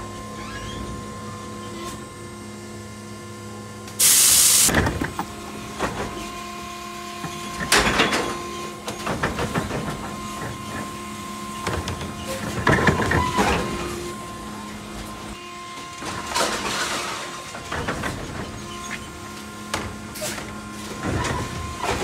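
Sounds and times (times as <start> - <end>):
garbage truck electric whine: 0.0 - 22.0
air hiss: 4.0 - 4.7
bangs and rattles: 7.5 - 10.9, 16.0 - 18.9.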